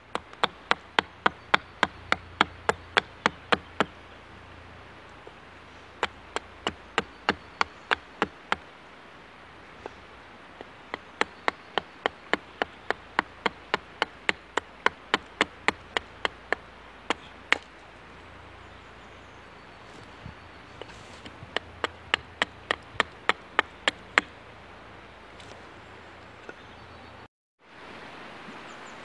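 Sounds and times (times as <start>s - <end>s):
hatchet chopping wood: 0.0s - 4.0s, 6.0s - 8.6s, 10.6s - 17.8s, 20.8s - 24.4s.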